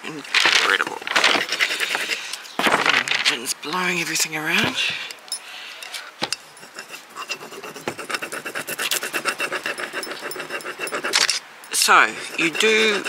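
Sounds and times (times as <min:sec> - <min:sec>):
wooden stick scraping transfer sheet: 0:00.3 - 0:03.4, 0:06.7 - 0:13.0.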